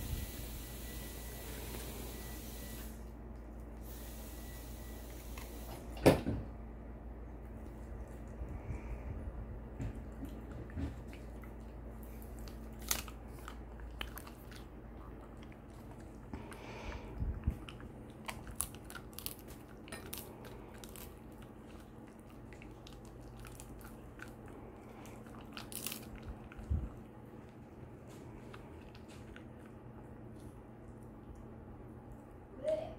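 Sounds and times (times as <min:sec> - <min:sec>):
dog chewing crunchy treat: 0:09.6 - 0:32.0.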